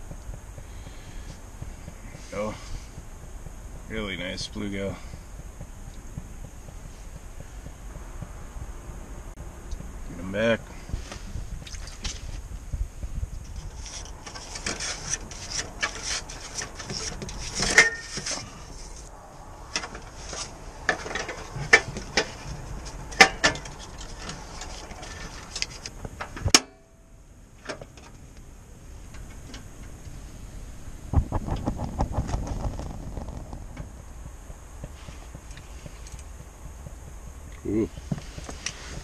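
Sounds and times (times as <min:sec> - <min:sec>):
clicks knocks and rubbing: 0:13.4 - 0:19.1.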